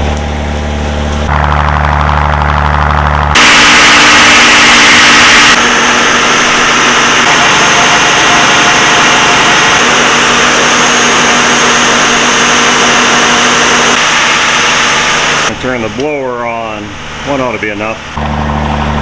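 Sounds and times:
boat engine running: 0.0s - 15.8s
loud rushing noise: 1.3s - 15.5s.

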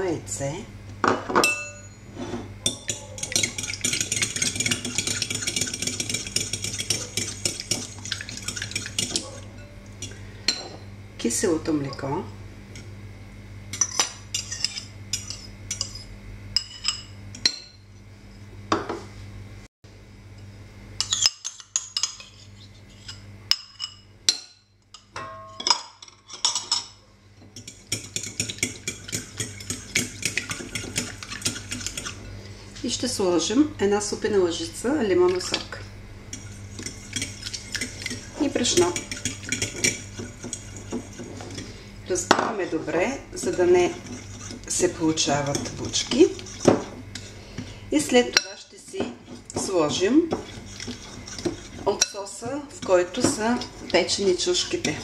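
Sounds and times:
glass clink: 1.4s - 2.1s, 10.5s - 10.8s, 23.5s - 26.2s
spoon scraping glass bowl: 1.7s - 10.7s, 13.8s - 17.8s, 21.0s - 24.0s, 27.6s - 32.4s, 36.3s - 41.8s, 43.4s - 47.4s, 48.3s - 55.0s
fork ticking against glass bowl: 2.7s - 10.2s
fork beating in glass bowl: 2.7s - 10.7s, 27.6s - 32.2s, 36.4s - 41.7s.

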